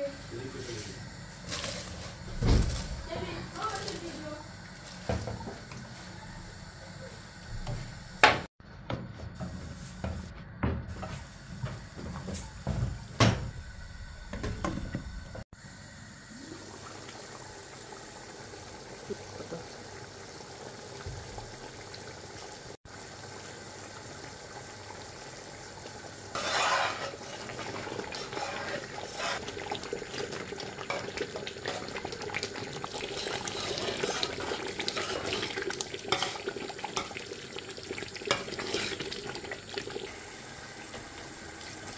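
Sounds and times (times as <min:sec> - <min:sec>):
water running and splashing: 0:16.4 - 0:26.4, 0:27.0 - 0:41.9
pots and utensils clattering: 0:26.3 - 0:37.3, 0:37.9 - 0:39.2.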